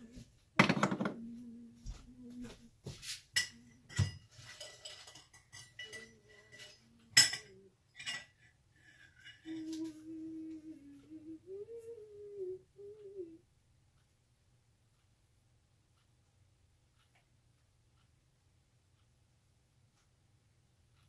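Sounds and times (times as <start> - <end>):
person humming a tune: 0.0 - 2.9, 9.3 - 13.5
utensil clinking against a bowl: 3.3 - 9.9.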